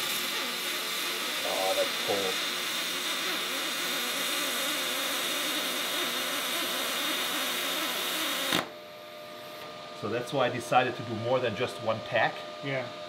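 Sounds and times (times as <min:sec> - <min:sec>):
welding arc hissing: 0:00.0 - 0:08.7.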